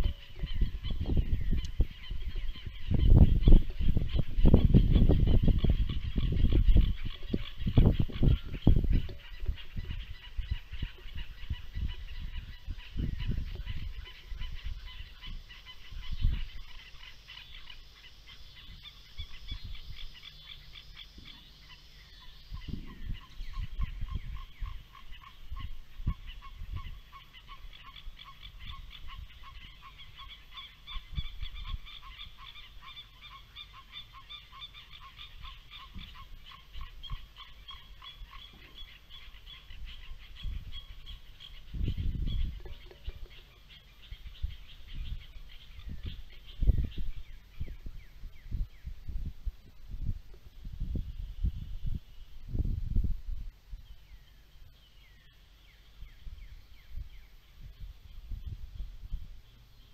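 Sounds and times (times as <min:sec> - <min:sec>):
geese honking: 0:00.0 - 0:46.1.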